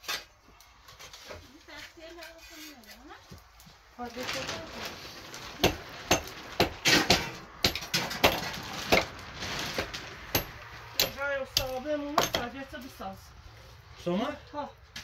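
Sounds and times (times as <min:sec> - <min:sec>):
sharp knocks on wood or masonry: 0:05.6 - 0:09.2, 0:09.8 - 0:12.5.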